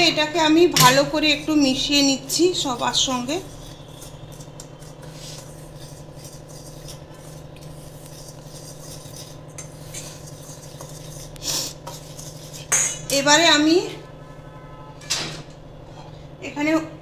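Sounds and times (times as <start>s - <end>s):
steady low hum: 0.0s - 17.0s
whisk scraping in steel bowl: 0.8s - 14.1s.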